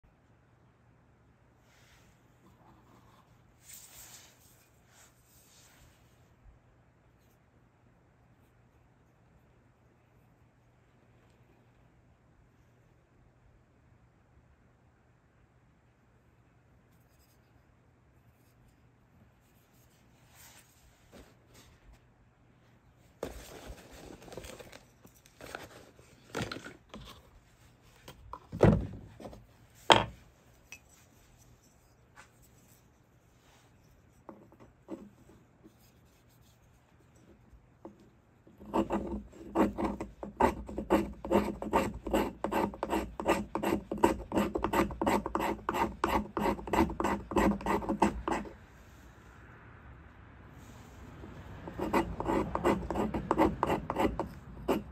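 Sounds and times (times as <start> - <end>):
handling rustles: 23.0 - 37.6
knife scraping wood: 38.6 - 48.6, 51.7 - 54.9.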